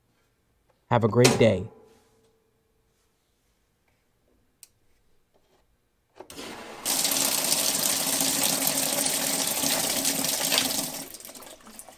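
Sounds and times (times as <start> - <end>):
water gushing into washing machine: 6.3 - 11.9.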